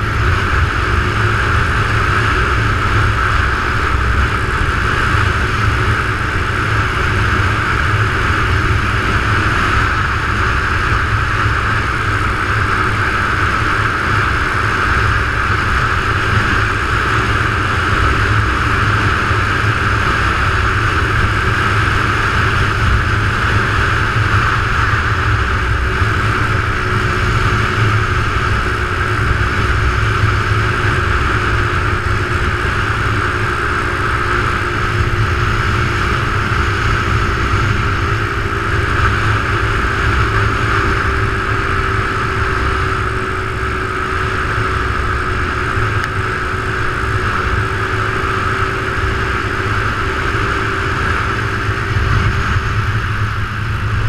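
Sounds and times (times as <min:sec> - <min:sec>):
motorcycle engine cruising: 0:00.0 - 0:54.0
wind rumble on microphone: 0:00.0 - 0:54.0.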